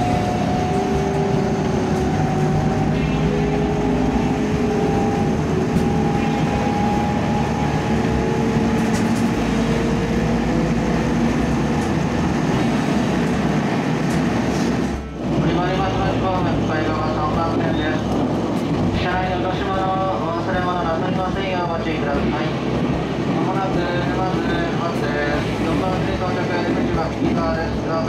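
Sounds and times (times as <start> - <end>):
train motor whine: 0.0 - 13.5
train wheels rumbling on track: 0.0 - 28.0.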